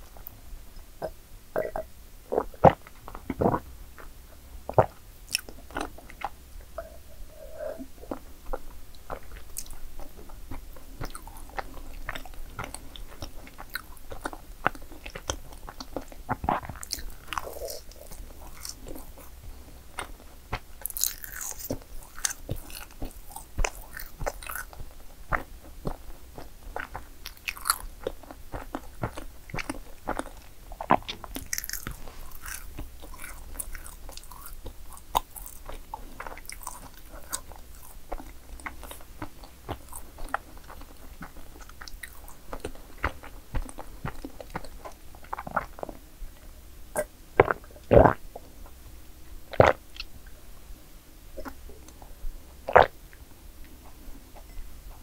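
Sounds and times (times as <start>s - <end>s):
chewing: 4.7s - 48.5s
crisp crunches: 20.8s - 24.7s, 31.1s - 35.8s.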